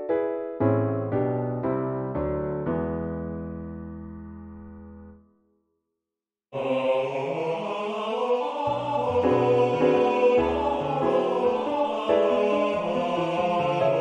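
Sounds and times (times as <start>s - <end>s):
piano accompaniment: 0.0s - 5.3s, 8.7s - 14.0s
tenor singing: 6.6s - 14.0s.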